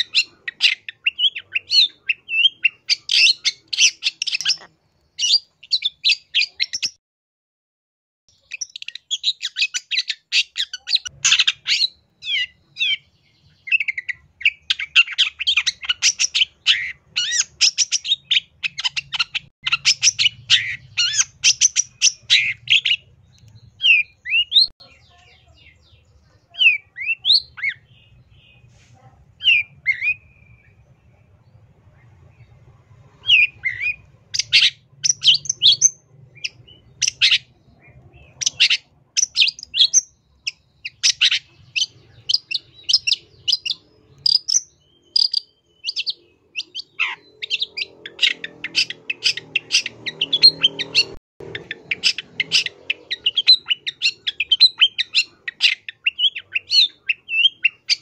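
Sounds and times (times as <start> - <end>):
bird singing chattering notes: 8.3 - 28.7, 33.2 - 58.0
bird whistling: 33.2 - 37.5, 38.2 - 58.0.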